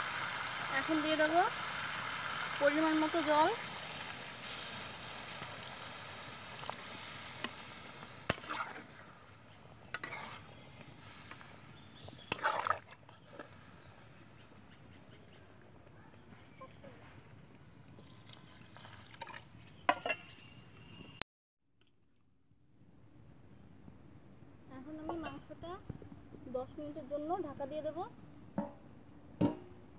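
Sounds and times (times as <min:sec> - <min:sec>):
water sizzling in hot wok: 0:00.0 - 0:14.6, 0:17.4 - 0:20.3
steady high hiss: 0:00.0 - 0:18.8.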